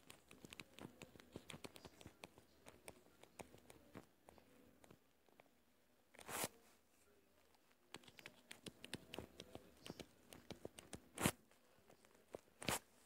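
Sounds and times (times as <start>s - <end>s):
stylus tapping on tablet screen: 0.0s - 5.0s, 7.9s - 11.3s.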